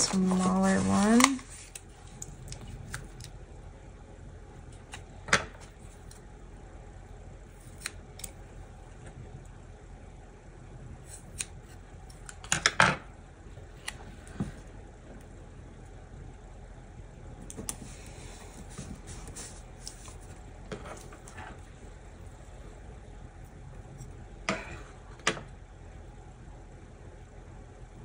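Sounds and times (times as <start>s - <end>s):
sticker sheet handling: 0.0s - 1.8s.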